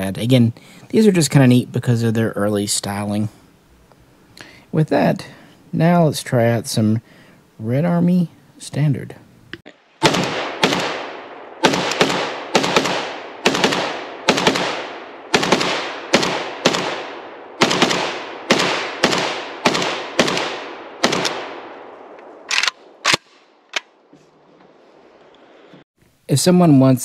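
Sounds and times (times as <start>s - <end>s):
rifle shots with echo: 10.0s - 23.4s.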